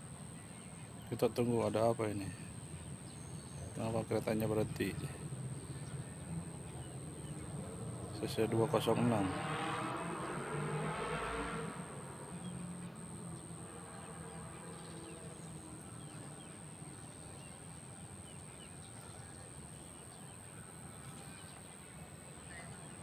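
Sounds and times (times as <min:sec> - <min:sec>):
faint bird chirps: 0:12.2 - 0:23.0.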